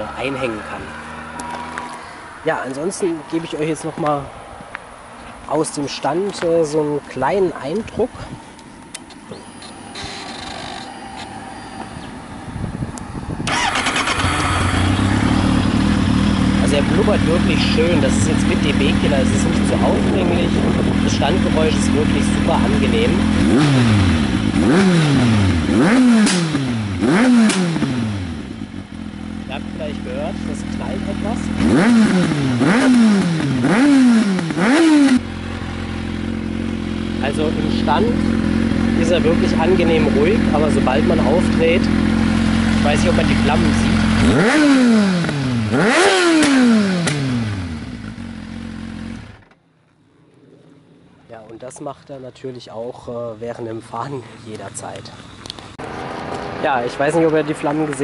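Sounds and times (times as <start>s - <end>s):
motorcycle engine revving: 0.0s - 3.2s, 8.9s - 51.3s
exhaust pops: 37.2s - 48.4s.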